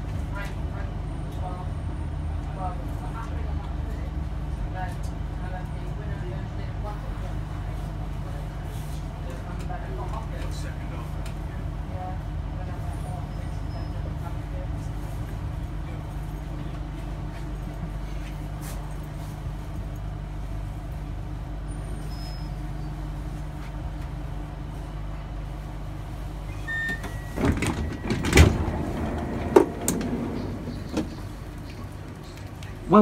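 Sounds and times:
train rumble: 0.0 - 33.0
train doors knocking and banging: 26.8 - 31.6.

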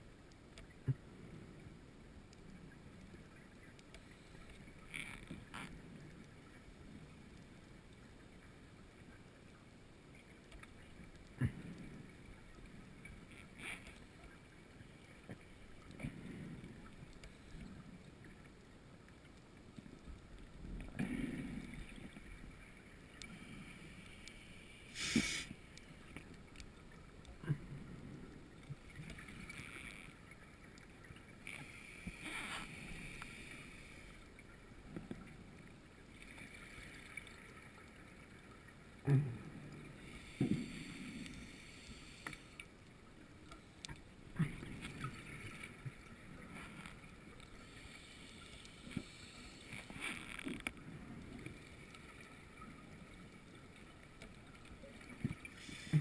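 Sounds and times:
underwater bubbles gurgling: 0.2 - 56.0
regulator hiss: 23.6 - 25.7.

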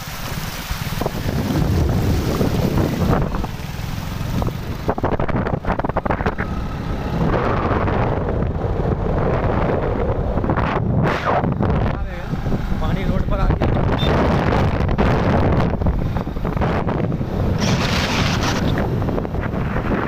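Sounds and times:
water splashing from wheels: 0.0 - 10.6, 11.4 - 20.0
wind buffeting microphone: 0.0 - 20.0
motorcycle engine running: 1.1 - 10.7.

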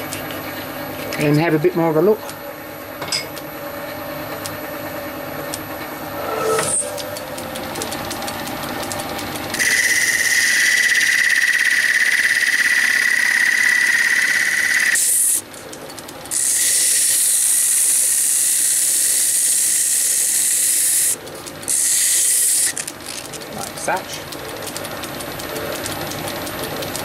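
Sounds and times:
lathe running: 5.0 - 27.0.

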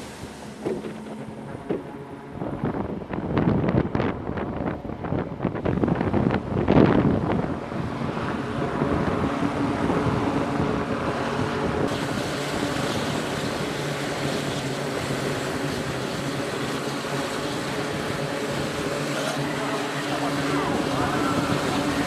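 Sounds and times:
loud rush of noise: 0.0 - 22.0
turboprop engines droning: 0.0 - 22.0.

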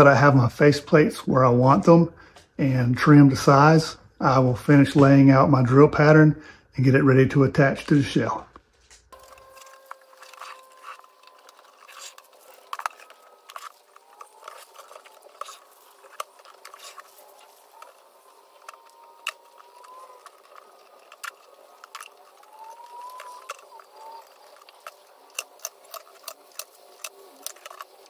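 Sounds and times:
masking tape peeling: 9.1 - 28.0.

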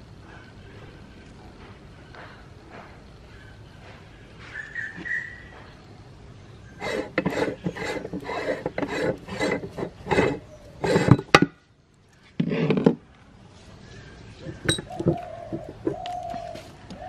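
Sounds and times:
meat grinder metal scraping: 6.8 - 11.4.

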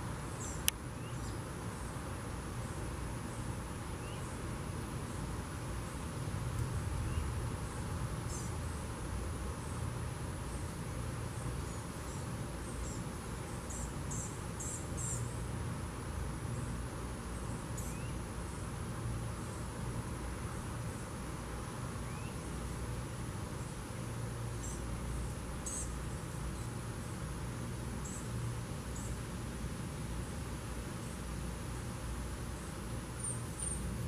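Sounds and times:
insects trilling: 0.2 - 6.2, 6.9 - 29.4, 30.1 - 34.0.

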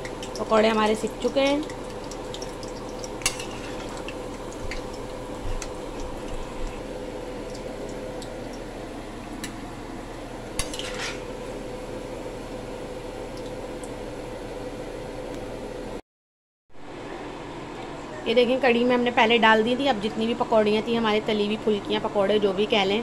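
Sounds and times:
food deep-frying in oil: 0.0 - 16.0
metal spoon scraping pan: 3.2 - 4.0, 10.6 - 11.3.

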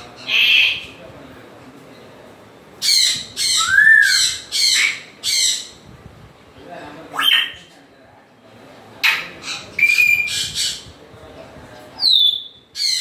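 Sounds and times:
parrot squawking: 0.2 - 0.9, 2.8 - 5.8, 7.1 - 7.6, 9.0 - 10.8
parrot whistling: 3.5 - 5.0.

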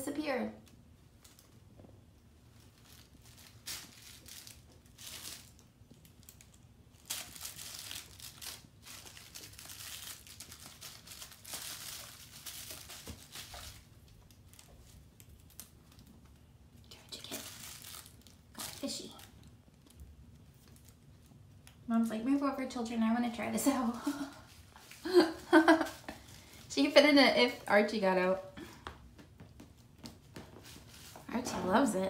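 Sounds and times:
rustling and scratching of cat bed: 0.9 - 21.6, 28.7 - 32.0.

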